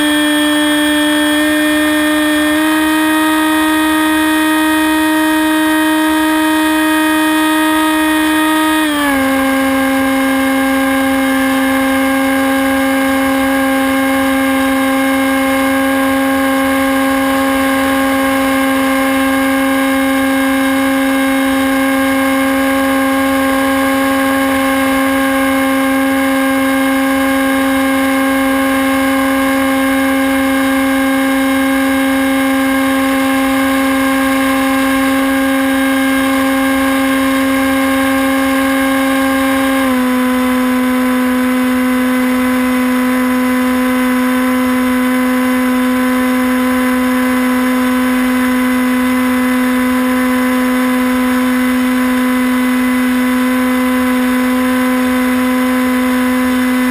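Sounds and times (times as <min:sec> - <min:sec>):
model plane propeller whining: 0:00.0 - 0:56.9.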